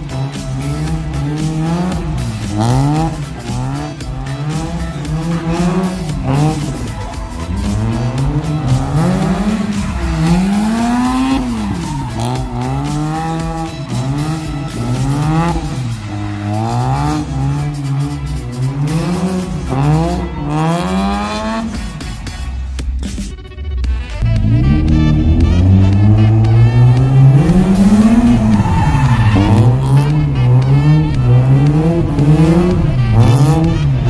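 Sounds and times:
rotary engine revving: 0:00.0 - 0:21.9, 0:24.2 - 0:34.0
tyres squealing on wet pavement: 0:24.9 - 0:31.9.

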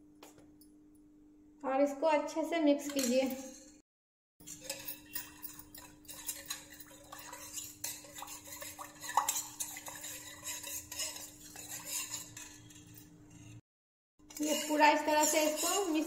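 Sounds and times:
spoon scraping and clinking in pan: 0:04.4 - 0:13.6, 0:14.2 - 0:16.0.

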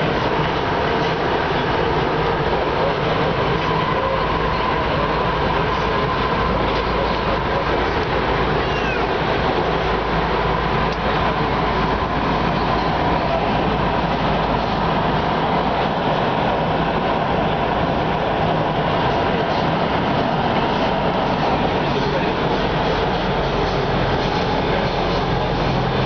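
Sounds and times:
constant whine: 0:00.0 - 0:26.0
metro car running rumble: 0:00.0 - 0:26.0
faint brief squeal: 0:08.6 - 0:09.1.

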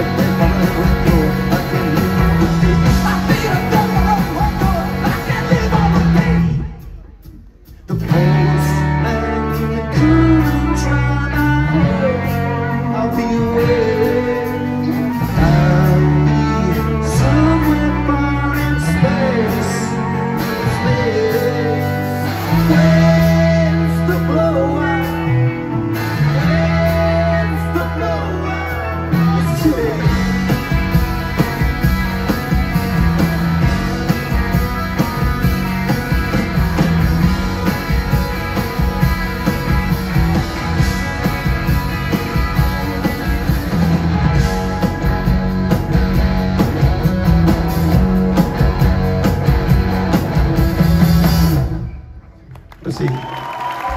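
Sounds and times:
person singing: 0:00.0 - 0:06.8, 0:07.8 - 0:30.3
bass guitar: 0:00.0 - 0:53.9
drums: 0:00.0 - 0:53.9
electric guitars: 0:00.0 - 0:53.9.

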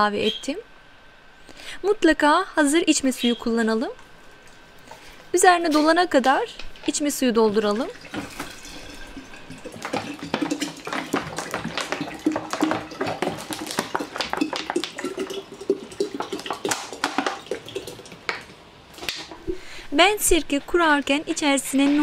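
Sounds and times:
water glugging into glass jar: 0:07.6 - 0:18.5.

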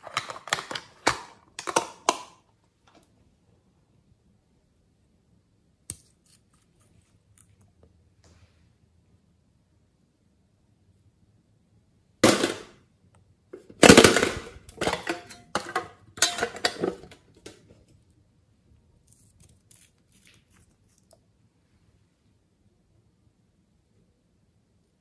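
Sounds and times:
plastic containers clattering: 0:00.0 - 0:02.4, 0:13.6 - 0:17.8
plastic containers rattling: 0:13.8 - 0:17.3.

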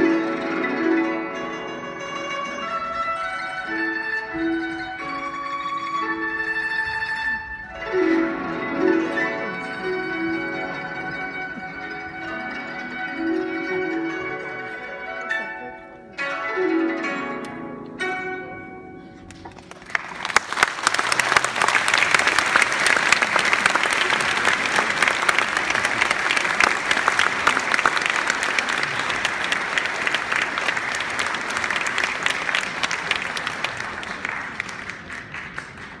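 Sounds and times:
audience applauding: 0:19.2 - 0:36.0.

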